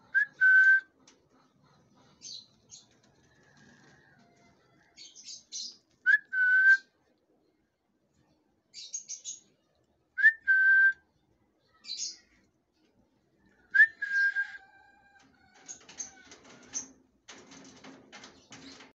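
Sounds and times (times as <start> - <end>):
scratchy bird chatter: 1.0 - 6.0, 15.1 - 19.0
cockatiel whistling: 13.8 - 14.6.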